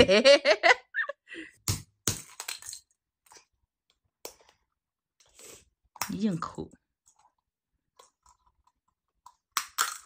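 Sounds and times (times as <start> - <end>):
plastic capsule clicking and cracking: 7.9 - 10.0.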